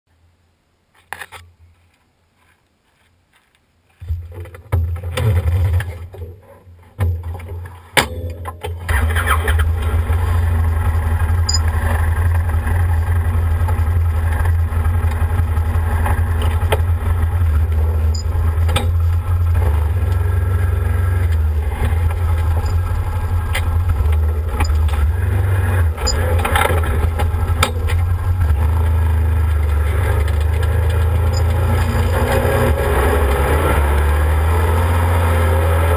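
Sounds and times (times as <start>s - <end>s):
knocks and bumps climbing aboard: 4.0s - 8.7s
engine starting and running: 4.4s - 6.6s, 8.5s - 35.9s.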